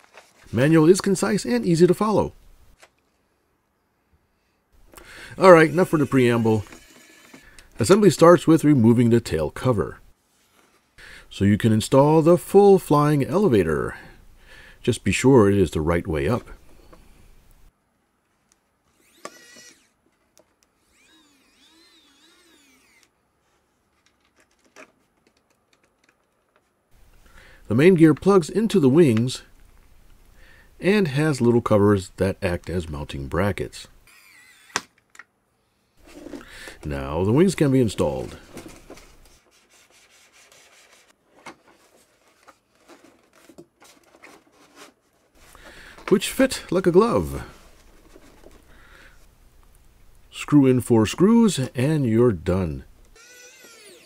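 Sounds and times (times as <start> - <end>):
electric screwdriver whirring: 5.6 - 7.5, 18.9 - 20.0, 20.8 - 23.1, 34.1 - 34.9, 53.2 - 54.0.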